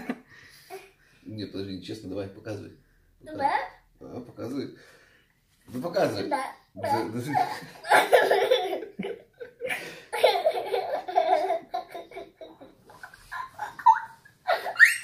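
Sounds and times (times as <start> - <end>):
boy laughing hard: 6.8 - 15.0.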